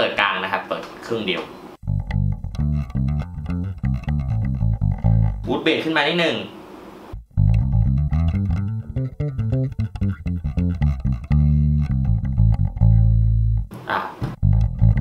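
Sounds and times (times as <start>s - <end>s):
electric bass plucked notes: 1.8s - 5.6s, 7.2s - 15.0s.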